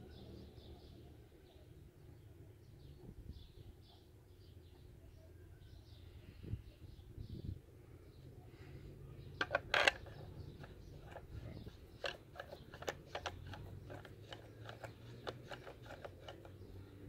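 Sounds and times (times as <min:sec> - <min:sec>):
suppressor threads clicking and scraping: 0:09.4 - 0:17.0.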